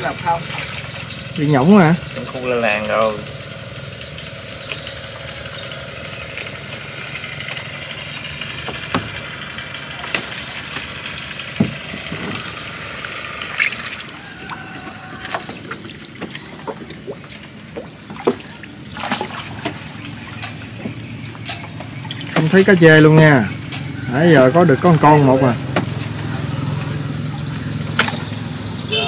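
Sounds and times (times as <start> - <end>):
light water splashes: 0.0 - 1.5, 9.9 - 23.9, 25.8 - 29.0.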